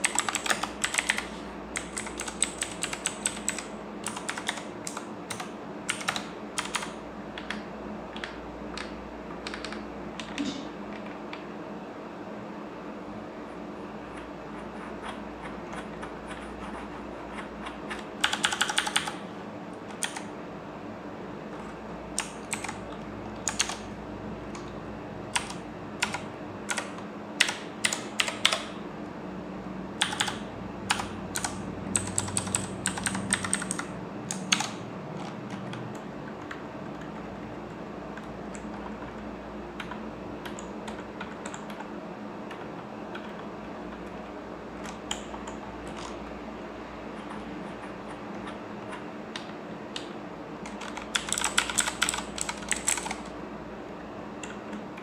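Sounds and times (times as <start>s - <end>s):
mechanical keyboard clicking: 0.0s - 10.4s, 17.3s - 19.2s, 19.9s - 20.3s, 22.2s - 22.8s, 23.4s - 23.8s, 25.3s - 28.8s, 30.0s - 37.1s, 39.8s - 41.9s, 47.2s - 53.3s
steady low hum: 0.0s - 55.0s.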